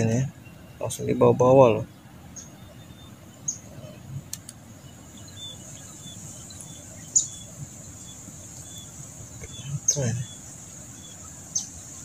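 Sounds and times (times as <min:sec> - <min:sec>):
sharp clicks: 0:04.3 - 0:04.6
high insect buzz: 0:04.8 - 0:12.0.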